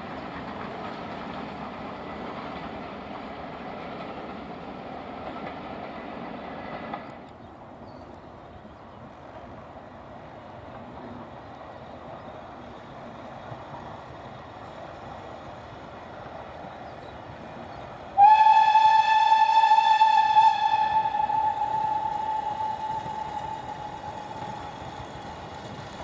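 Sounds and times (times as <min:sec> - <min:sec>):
train running noise: 0:00.0 - 0:26.0
steam locomotive whistle: 0:18.2 - 0:24.8.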